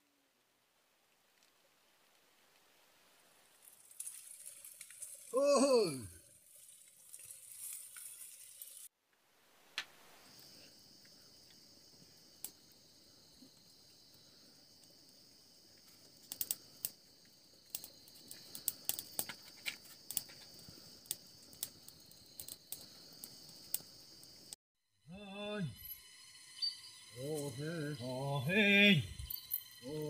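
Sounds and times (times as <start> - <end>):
wood fire crackling: 0.2 - 8.9, 9.6 - 24.6
insects chirring: 3.5 - 8.9, 9.7 - 30.0.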